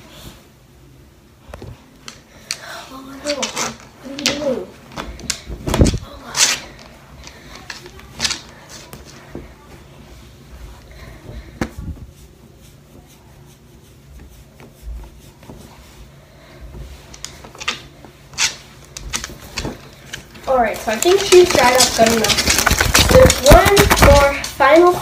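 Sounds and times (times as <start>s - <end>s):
towel rubbing wet fur: 11.8s - 16.2s.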